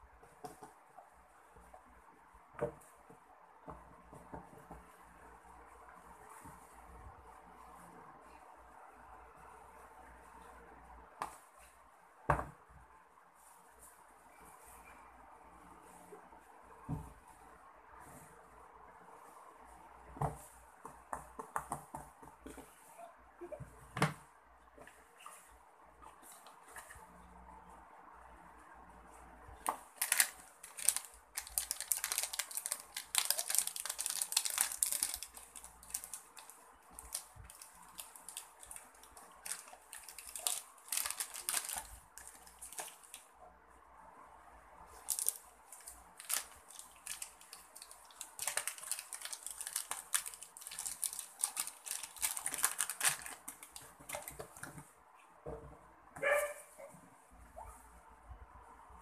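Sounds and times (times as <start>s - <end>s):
plastic bags crinkling: 29.9s - 43.3s, 45.0s - 54.7s.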